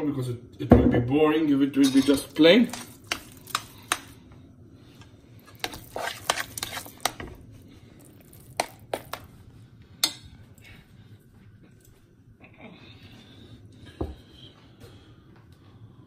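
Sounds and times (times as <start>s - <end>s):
utensils clinking against dishes: 1.8s - 3.7s.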